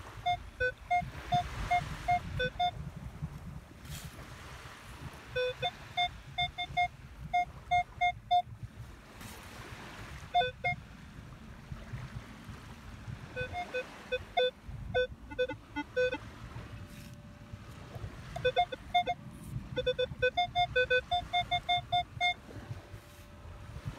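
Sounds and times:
metal detector beeping: 0.1 - 2.8, 5.3 - 8.5, 10.3 - 10.8, 13.3 - 16.2, 18.3 - 23.9.

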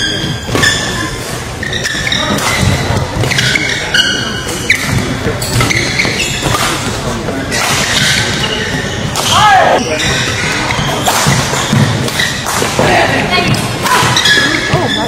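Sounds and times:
shoes squeaking on court floor: 0.0 - 12.5, 13.3 - 15.0
rackets hitting shuttlecock: 0.1 - 15.0.

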